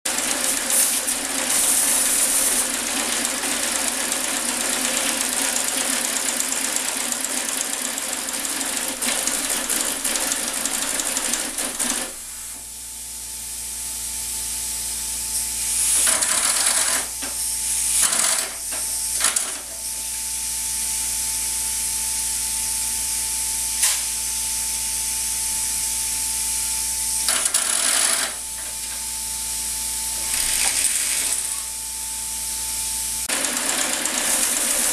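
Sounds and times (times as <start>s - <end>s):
model steam shovel running: 0.1s - 12.1s, 33.3s - 34.9s.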